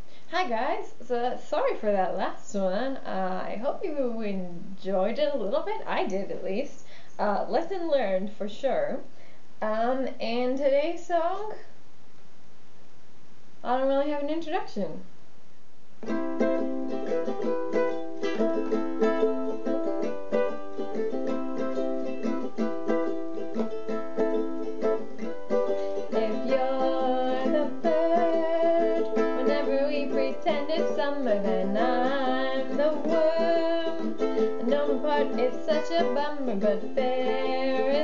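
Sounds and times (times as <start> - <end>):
ukulele strumming: 16.0 - 38.0
wordless voice singing: 26.0 - 38.0.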